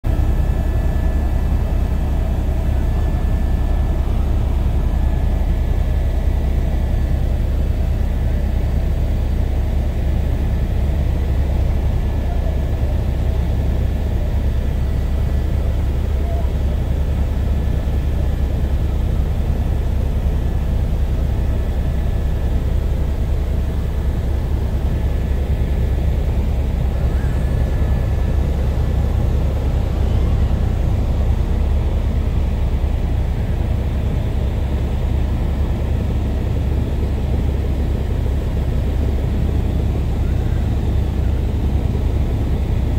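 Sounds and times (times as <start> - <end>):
helicopter rotor and engine drone: 0.0 - 42.9.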